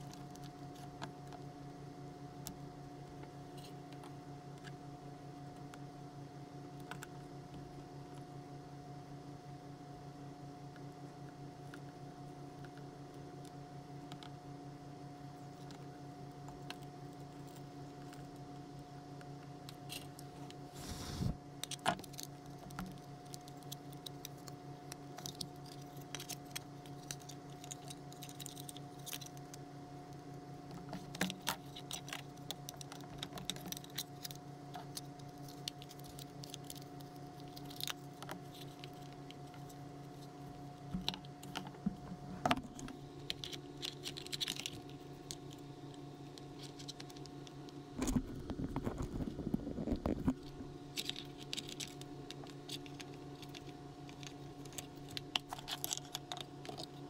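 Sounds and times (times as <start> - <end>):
plastic parts clicking and rattling: 21.6 - 29.6, 30.7 - 40.3, 40.9 - 57.0.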